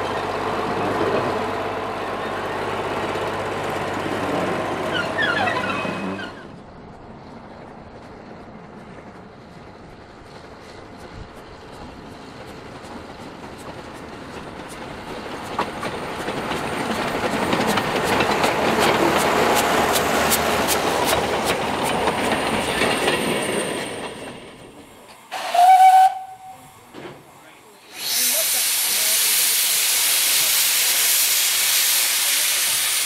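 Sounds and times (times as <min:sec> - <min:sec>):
train wheels clicking over rail joints: 0:06.9 - 0:33.0
steam whistle blast: 0:25.3 - 0:26.7.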